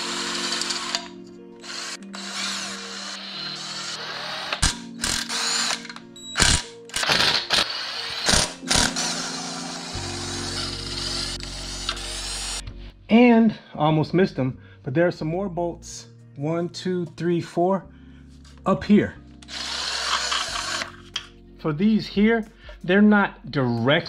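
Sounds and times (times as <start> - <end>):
cordless drill whirring: 0.0 - 12.6, 19.4 - 21.0
background music with held tones: 0.0 - 24.0.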